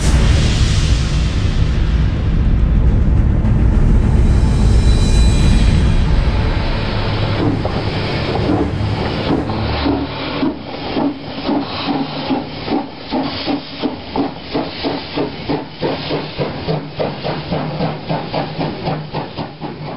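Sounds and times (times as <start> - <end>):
steam locomotive chuffing: 0.0 - 19.9
hissing steam: 5.0 - 19.9.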